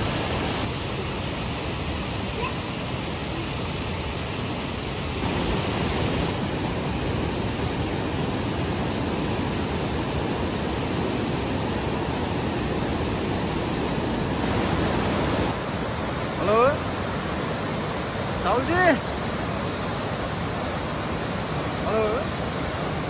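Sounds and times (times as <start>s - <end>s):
rain falling: 0.0s - 3.4s.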